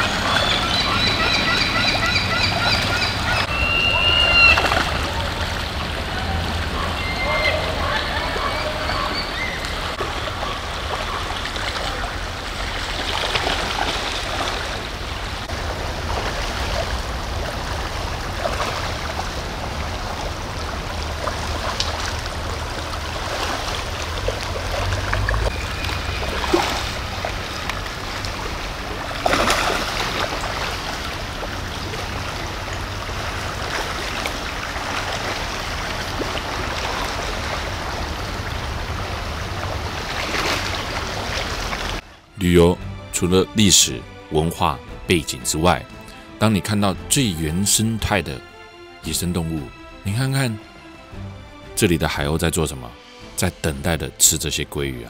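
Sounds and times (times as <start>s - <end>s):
fish splashing in shallow water: 0.0s - 8.6s, 9.5s - 42.0s
creek running over stones: 2.7s - 43.1s.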